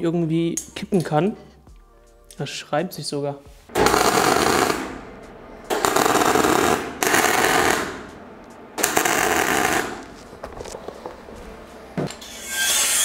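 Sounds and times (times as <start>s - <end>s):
welding arc crackling: 3.8s - 11.4s.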